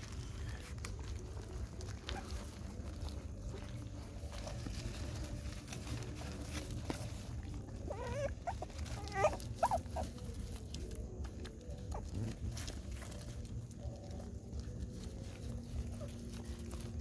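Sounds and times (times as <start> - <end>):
puppy whimpering: 6.4 - 13.4.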